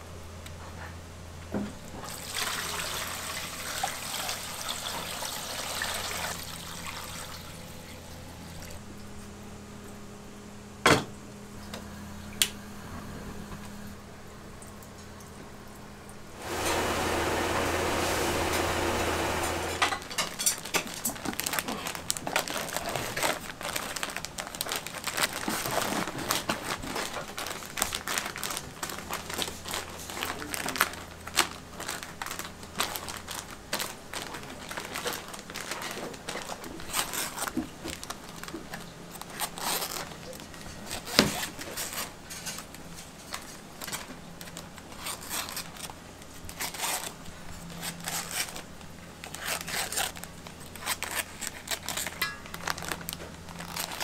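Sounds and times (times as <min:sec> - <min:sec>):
steady low hum: 0:06.4 - 0:20.7.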